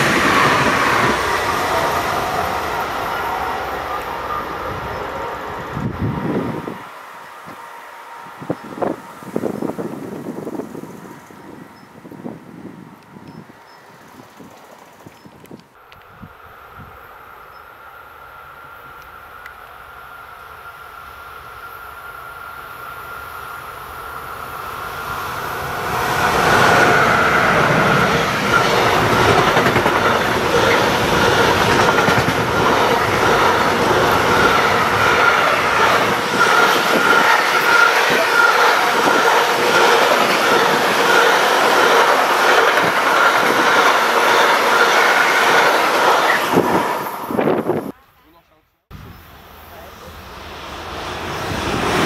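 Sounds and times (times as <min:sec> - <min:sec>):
freight train passing: 0:00.0 - 0:48.0, 0:48.9 - 0:52.0
rapid train wheel clicks: 0:28.5 - 0:47.1
steady high wheel squeal: 0:32.7 - 0:47.1.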